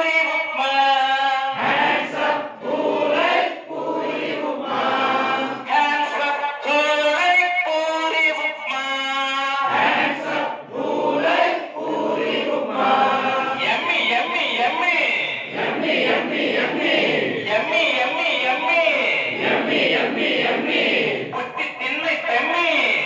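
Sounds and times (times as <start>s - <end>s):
group of adults singing: 1.5s - 6.2s, 9.7s - 13.9s, 15.4s - 17.6s, 19.2s - 21.4s.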